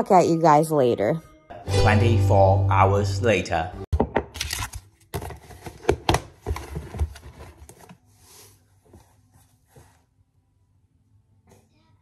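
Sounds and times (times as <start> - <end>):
plastic food container handled: 5.1 - 8.0.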